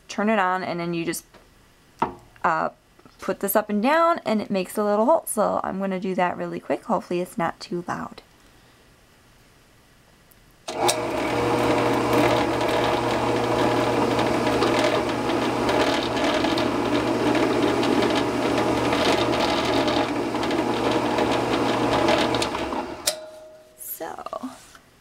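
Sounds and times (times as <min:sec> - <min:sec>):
drill press motor humming: 0:10.7 - 0:23.2.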